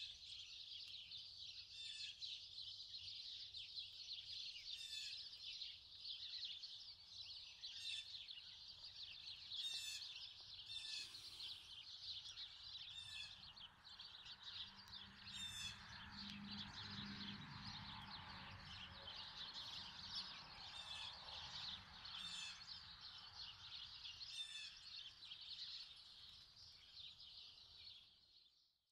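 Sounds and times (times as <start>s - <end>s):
small birds chirping: 0.0s - 28.8s.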